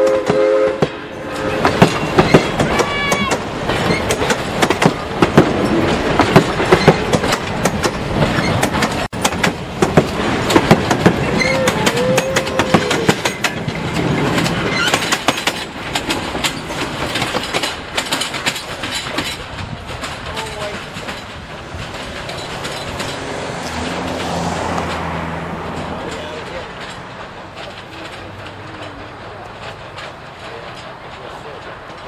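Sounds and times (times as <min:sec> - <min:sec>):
train wheels clattering over joints: 0:00.0 - 0:32.0
train wheels squealing: 0:11.2 - 0:13.6, 0:14.5 - 0:15.4.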